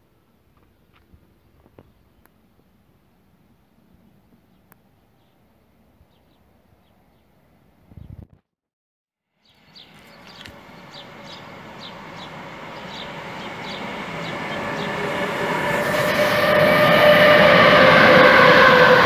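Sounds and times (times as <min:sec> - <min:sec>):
electric locomotive motor whine: 0:09.8 - 0:19.0.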